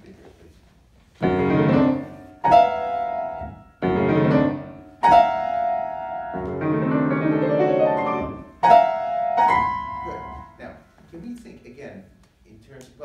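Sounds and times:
grand piano played loudly: 1.2 - 10.6.

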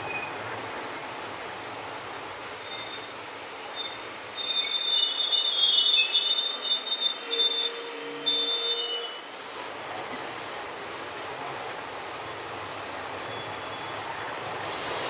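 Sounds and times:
train wheels squealing: 0.0 - 9.3, 12.3 - 14.2
train running noise: 0.0 - 15.0.

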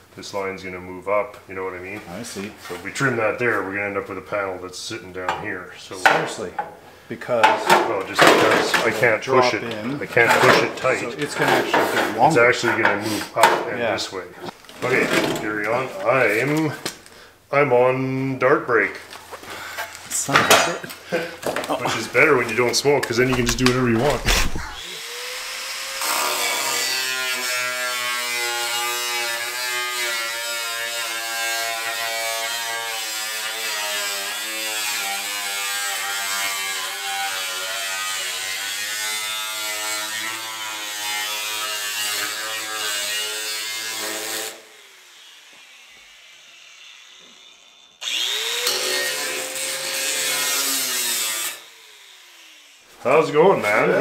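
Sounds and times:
angle grinder cutting sheet steel: 23.1 - 53.0.

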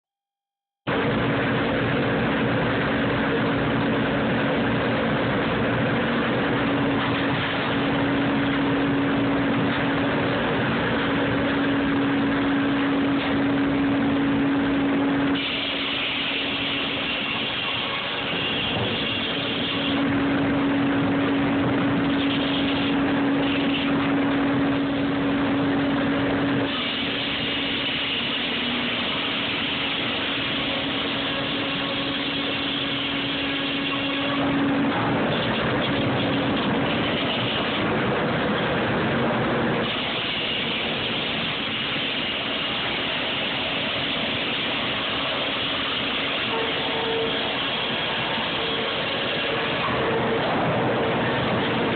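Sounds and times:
circular saw humming: 1.6 - 37.9
saw blade cutting log: 21.9 - 24.1.

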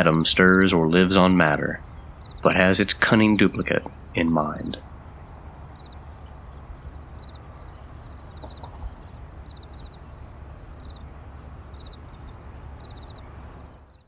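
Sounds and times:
high insect hum: 0.0 - 14.0
insects chirping: 0.0 - 14.0.

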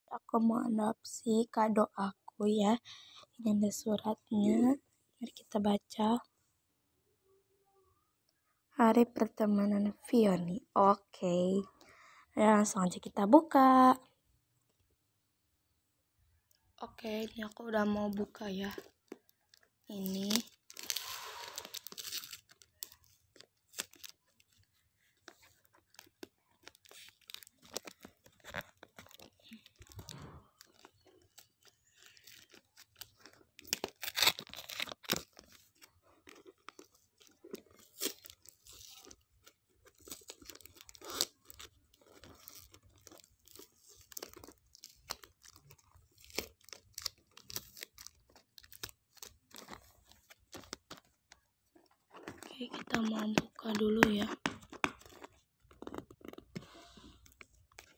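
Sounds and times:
wrapping paper crinkling: 17.2 - 57.9
paper tearing: 20.2 - 24.5, 25.3 - 50.9.

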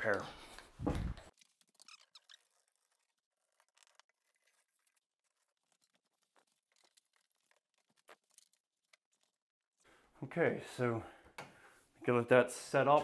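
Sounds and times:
faint clicks and rustles: 0.1 - 9.4.

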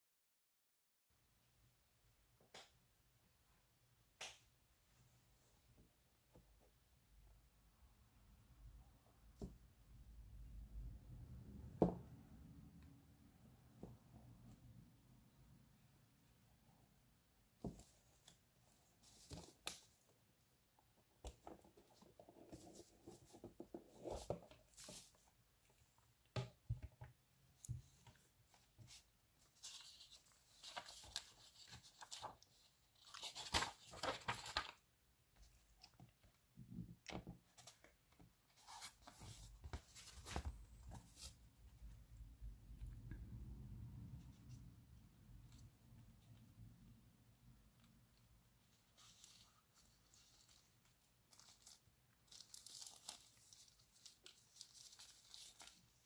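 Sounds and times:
paper rustling and crinkling: 21.2 - 25.4, 27.6 - 34.8, 38.5 - 41.4, 48.6 - 56.0.

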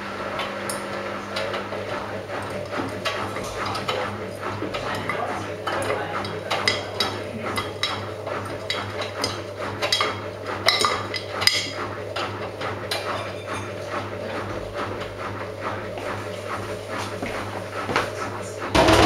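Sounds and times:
washing machine low hum: 0.0 - 19.0
washing machine tumbling: 0.0 - 19.0
clinks and knocks in drum: 18.7 - 19.0.

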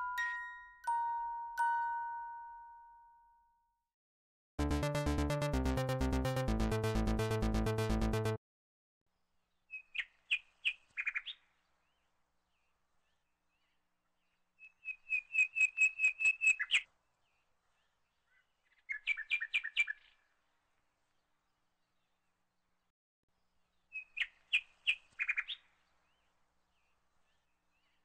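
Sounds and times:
small bird chirping: 9.6 - 11.5, 14.6 - 16.9, 17.9 - 20.2, 23.8 - 26.2.

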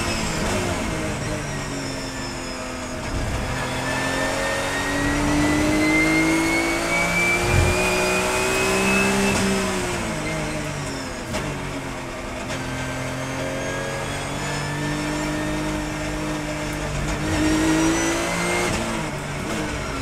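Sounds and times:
race car engine accelerating: 0.0 - 20.0
low thump: 7.3 - 8.6.

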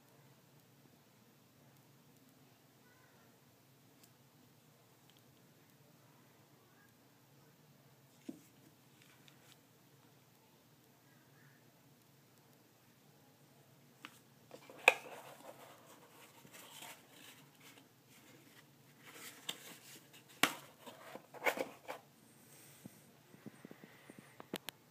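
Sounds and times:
plastic and cardboard rustling: 14.0 - 22.0.

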